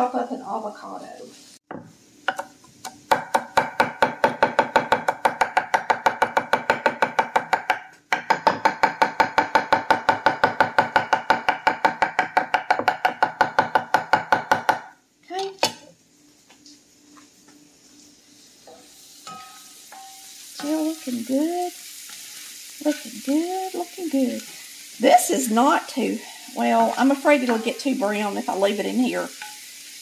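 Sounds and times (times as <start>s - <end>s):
knife chopping on wooden board: 1.7s - 14.9s.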